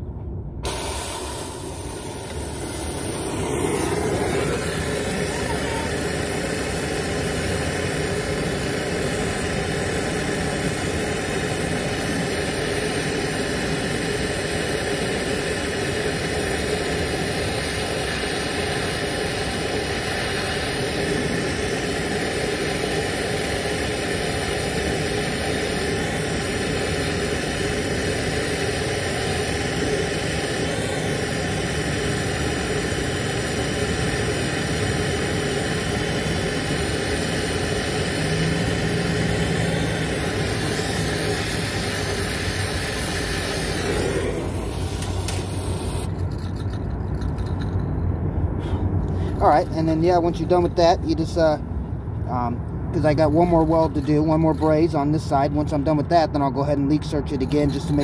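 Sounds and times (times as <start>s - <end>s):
torch flame hissing: 0.6s - 46.2s.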